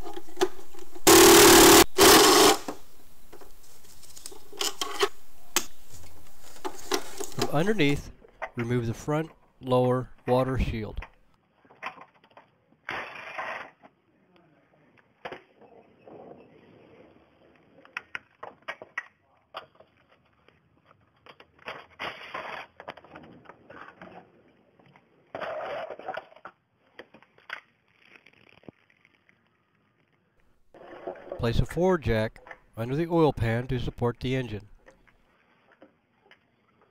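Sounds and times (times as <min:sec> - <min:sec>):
plastic scraping: 0:00.0 - 0:08.6.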